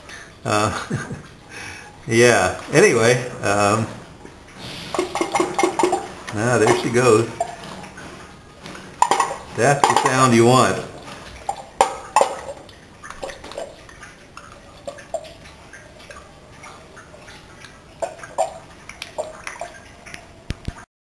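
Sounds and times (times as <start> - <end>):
faint water sounds: 0.0 - 20.9
pop-pop boat engine popping: 5.0 - 7.6.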